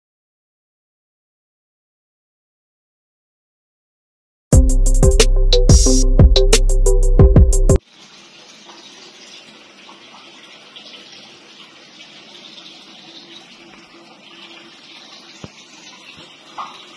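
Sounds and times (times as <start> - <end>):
music: 4.5 - 7.8
water running in a fish tank: 7.8 - 16.9.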